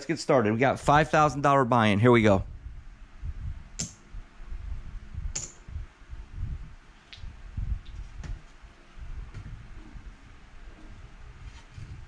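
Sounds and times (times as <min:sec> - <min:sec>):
sharp clicks: 0:03.8 - 0:04.0, 0:05.3 - 0:05.6.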